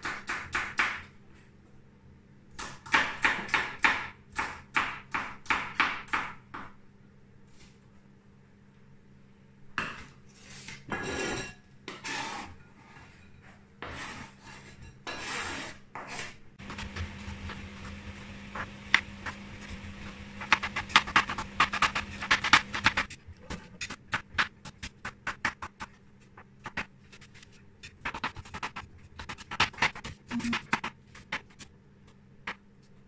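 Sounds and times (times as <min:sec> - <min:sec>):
knife scraping on cutting board: 0:10.4 - 0:17.5
low steady hum: 0:16.6 - 0:23.9
knife chopping on plastic board: 0:20.1 - 0:25.9, 0:27.9 - 0:31.5.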